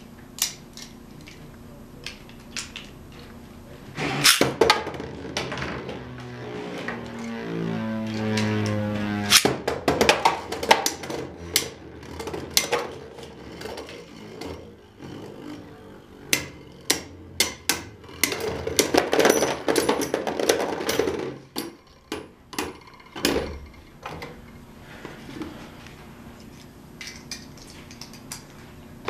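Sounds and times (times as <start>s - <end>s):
tops grinding across plastic floor: 3.9s - 21.4s.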